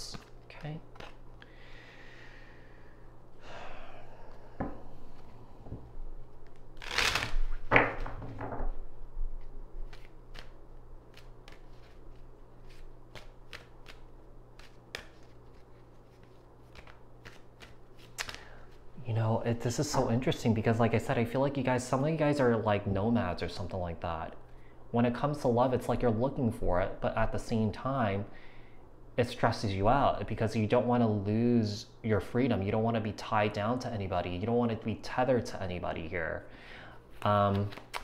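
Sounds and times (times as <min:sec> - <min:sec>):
cards shuffling and rustling: 0:00.1 - 0:01.2, 0:09.4 - 0:18.8, 0:37.2 - 0:38.0
crisp card clicks and snaps: 0:00.1 - 0:01.2, 0:13.1 - 0:15.6.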